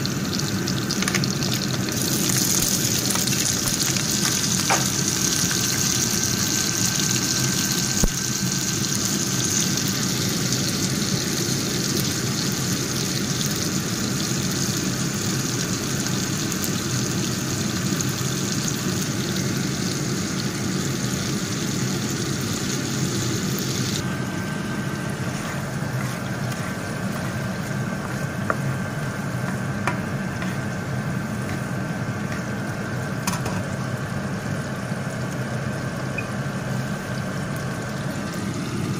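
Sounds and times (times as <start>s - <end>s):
prawns sizzling in oil: 0.0s - 38.9s
steady low hum: 17.8s - 38.9s.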